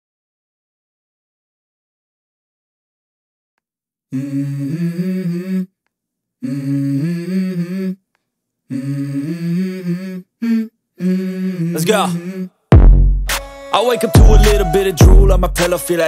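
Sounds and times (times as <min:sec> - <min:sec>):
person humming a melody: 0:04.1 - 0:05.7, 0:06.4 - 0:08.0, 0:08.7 - 0:12.5, 0:13.8 - 0:16.0.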